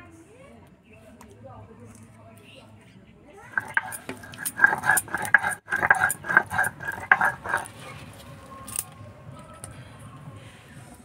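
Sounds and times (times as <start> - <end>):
batter scraped off stone slab: 3.5 - 7.8
metal bowl clinking and ringing: 3.6 - 7.7.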